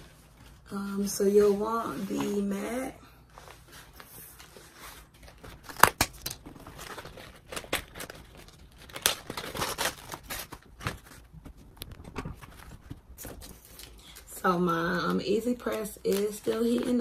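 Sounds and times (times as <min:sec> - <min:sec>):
fabric rustling and rubbing: 0:00.0 - 0:05.4.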